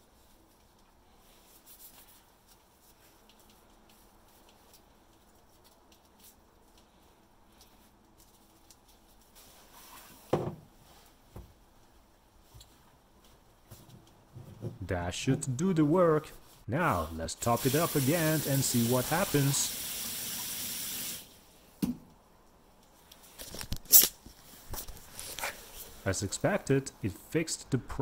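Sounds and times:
gloves rustling: 0.0 - 14.6.

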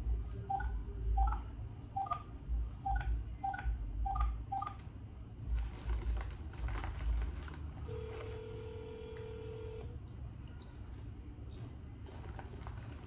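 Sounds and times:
telephone ringback tone: 7.9 - 9.8.

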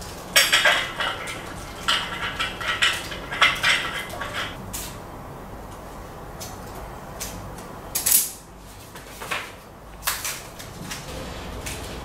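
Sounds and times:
hard parts clattering and scraping: 0.0 - 4.6.

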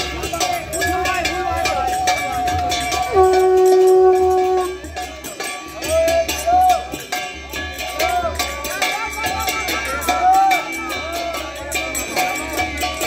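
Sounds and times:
clashing hand percussion: 0.0 - 13.0
conch shell blast: 1.3 - 5.0.

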